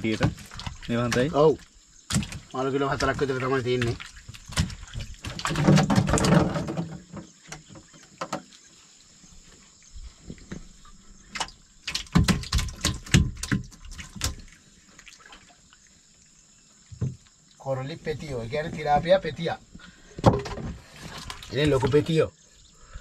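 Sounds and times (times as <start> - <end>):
fish flapping in wet boat: 0.0 - 1.3, 2.1 - 8.3, 11.2 - 15.3, 20.3 - 22.1
water dripping: 0.0 - 6.4, 7.4 - 17.8.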